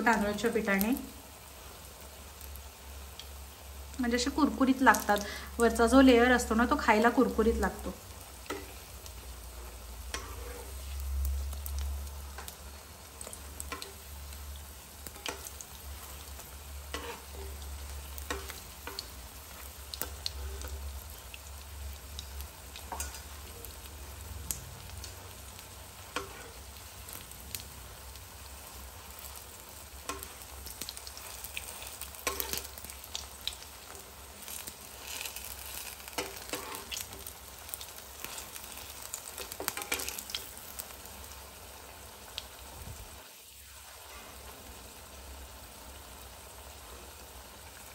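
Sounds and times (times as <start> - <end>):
potato slices sizzling in oil: 0.0 - 47.9
metal spatula turning food in pan: 4.9 - 41.4.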